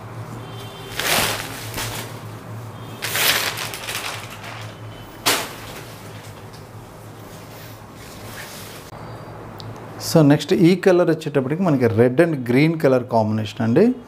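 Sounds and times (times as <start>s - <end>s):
silk fabric rustling: 0.9s - 2.3s.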